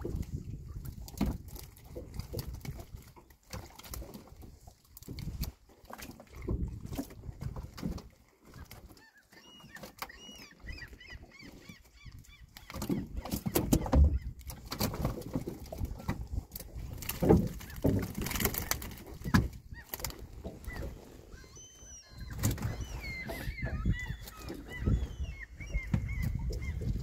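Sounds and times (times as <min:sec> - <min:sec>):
birds calling: 0:08.5 - 0:14.4, 0:18.6 - 0:27.0.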